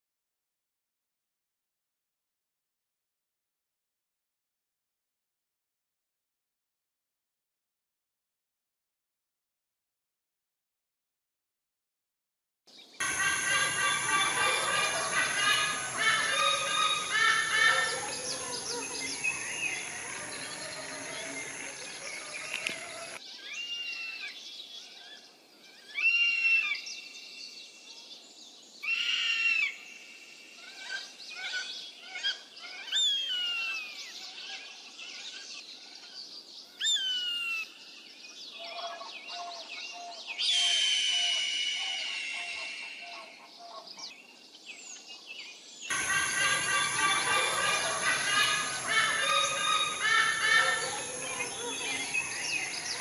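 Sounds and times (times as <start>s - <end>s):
rapid chatter of eagle calls: 13.0s - 23.2s, 45.9s - 53.0s
eagle whistled calls: 13.0s - 23.6s, 40.4s - 43.3s, 45.9s - 53.0s.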